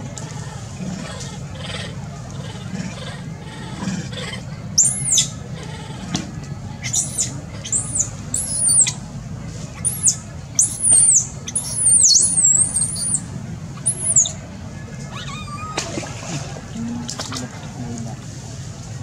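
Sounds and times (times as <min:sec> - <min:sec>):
baby monkey screeching: 0:01.1 - 0:06.0, 0:06.8 - 0:09.0, 0:09.8 - 0:14.4, 0:15.1 - 0:15.8.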